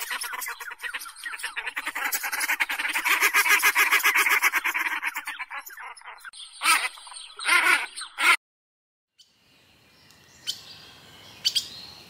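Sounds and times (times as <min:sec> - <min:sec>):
goose honking: 0:06.6 - 0:08.4.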